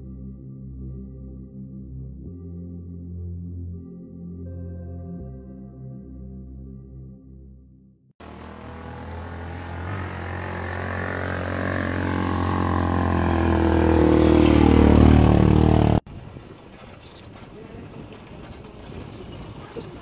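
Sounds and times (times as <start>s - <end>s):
small motorcycle engine running: 8.2s - 16.0s.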